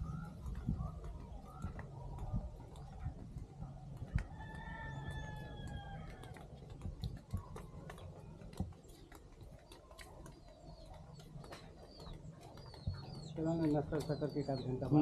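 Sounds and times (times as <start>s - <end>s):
low steady hum: 0.0s - 15.0s
small birds chirping: 0.0s - 15.0s.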